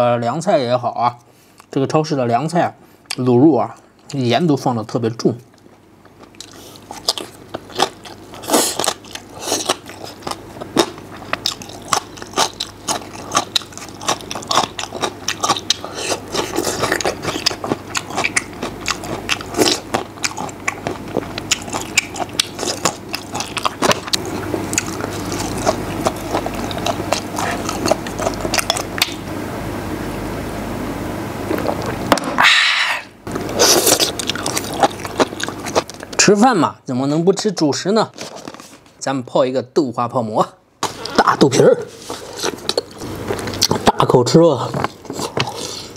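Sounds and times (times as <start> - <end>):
man chewing food: 5.5 - 29.3, 31.4 - 32.5, 33.2 - 36.2, 41.8 - 44.0, 44.6 - 45.9.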